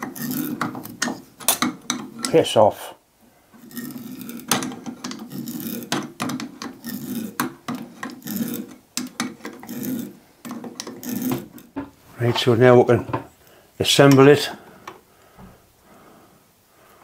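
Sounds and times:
threading die rasping on brass: 0:00.0 - 0:02.4, 0:03.6 - 0:11.8.

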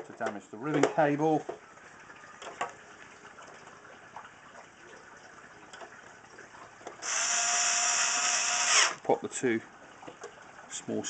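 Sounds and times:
electric screwdriver motor: 0:07.0 - 0:09.0.

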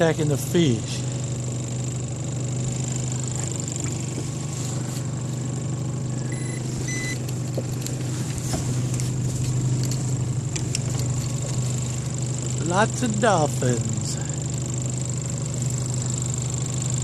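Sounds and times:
boat motor humming: 0:00.0 - 0:17.0
short electronic beeps: 0:06.3 - 0:07.2.

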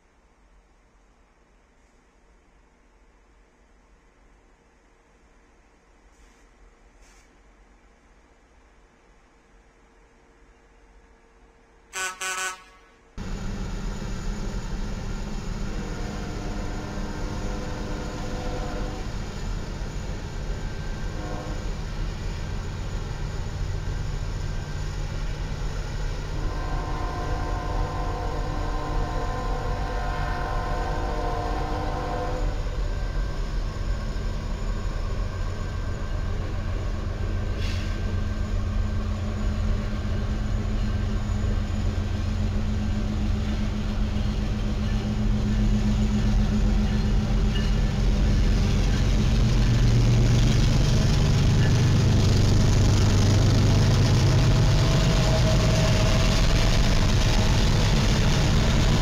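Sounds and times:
deep locomotive engine drone: 0:10.1 - 0:59.0
locomotive air horn chord: 0:11.9 - 0:13.1, 0:15.7 - 0:19.2, 0:21.1 - 0:21.7, 0:26.3 - 0:32.6, 0:54.4 - 0:57.9.

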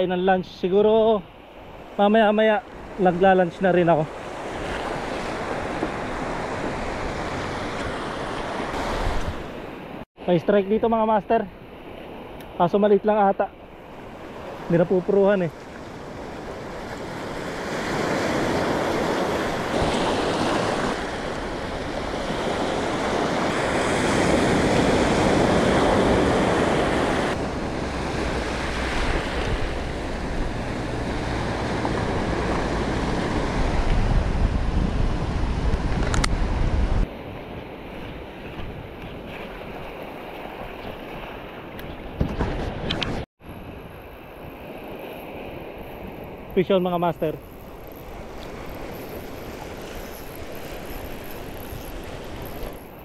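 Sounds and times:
wind rumbling on microphone: 0:04.1 - 0:10.0, 0:15.5 - 0:53.0
sea waves breaking on rocky shore: 0:13.7 - 0:42.9, 0:44.0 - 0:53.0.

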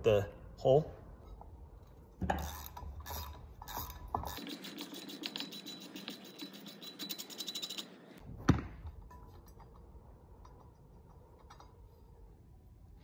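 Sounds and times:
ratchet clicking rapidly: 0:02.4 - 0:07.9.

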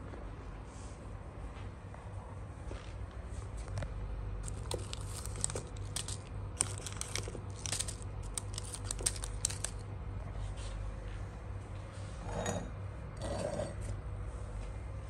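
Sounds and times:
low steady hum: 0:00.0 - 0:15.0
sachets crinkling in hand: 0:04.4 - 0:09.8.

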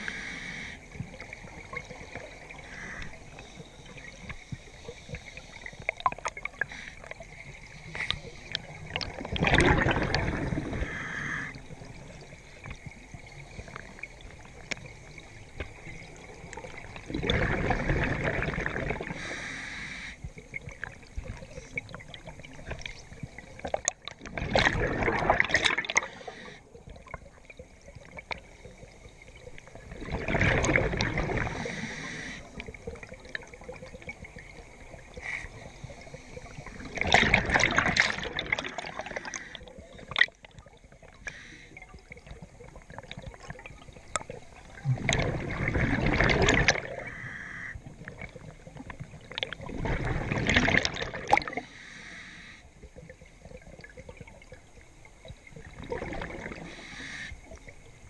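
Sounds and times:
diver's exhaled bubbles burbling: 0:08.0 - 0:12.8, 0:15.7 - 0:19.3, 0:20.4 - 0:27.3, 0:29.6 - 0:35.3, 0:36.5 - 0:41.2, 0:41.8 - 0:51.6, 0:55.5 - 0:56.8.

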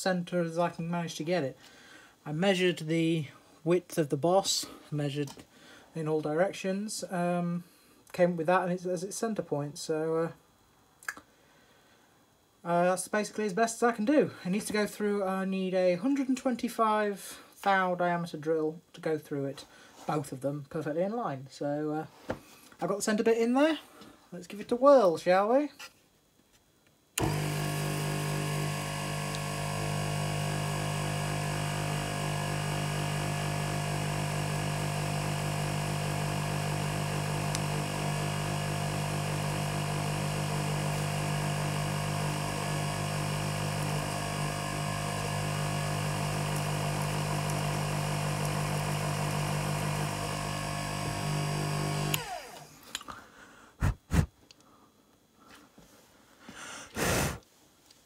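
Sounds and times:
milling machine spindle hum: 0:27.2 - 0:52.7.

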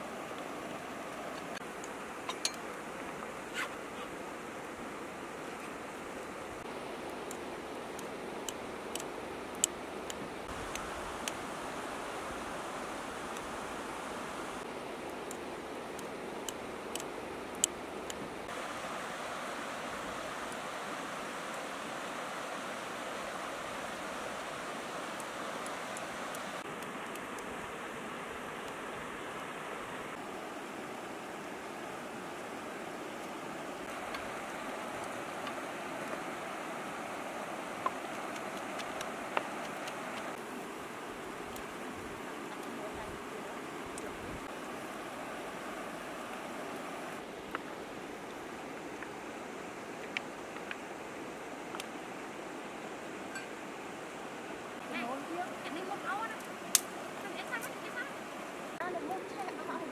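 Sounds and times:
river flowing over stones: 0:00.0 - 0:59.9
light sharp clicks: 0:56.4 - 0:57.0.

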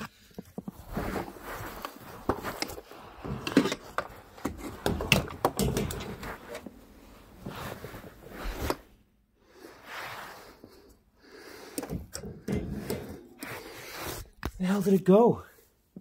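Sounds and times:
things scraping on carpet: 0:00.1 - 0:04.9, 0:06.0 - 0:11.6, 0:12.7 - 0:14.5.

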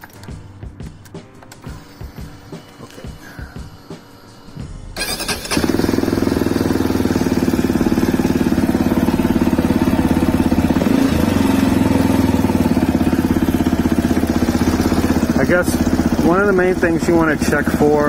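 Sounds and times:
motorcycle engine starting and idling: 0:05.0 - 0:18.0.

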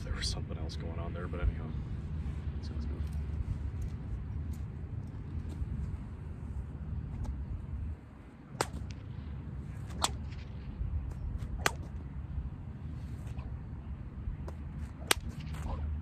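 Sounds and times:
bullwhip cracking: 0:08.5 - 0:09.1, 0:09.7 - 0:12.0, 0:13.1 - 0:13.6, 0:14.4 - 0:16.0.

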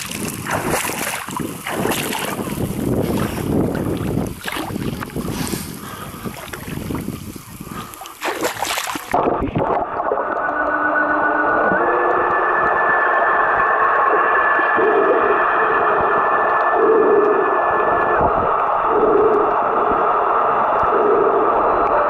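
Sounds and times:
sea water splashing: 0:00.0 - 0:10.6
wind on microphone: 0:00.0 - 0:22.0
muffled electric motor whine: 0:08.7 - 0:22.0.

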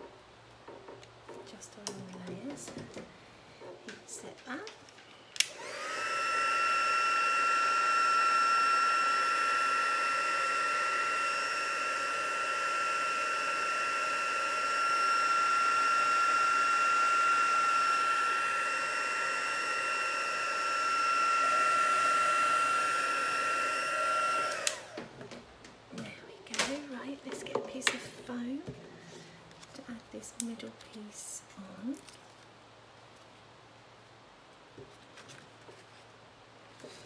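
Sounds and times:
heat tool whine and rushing air: 0:05.4 - 0:25.2.

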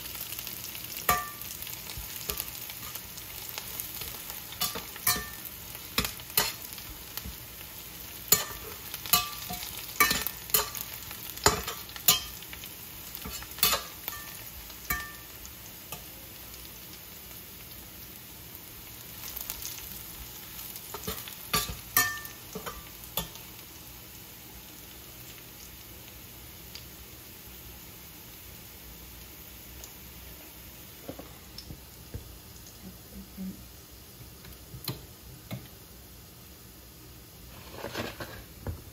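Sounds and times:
onion sizzling in oil: 0:00.0 - 0:38.9
metal turner scraping a frying pan: 0:03.6 - 0:06.9, 0:08.3 - 0:15.3, 0:37.5 - 0:38.6.

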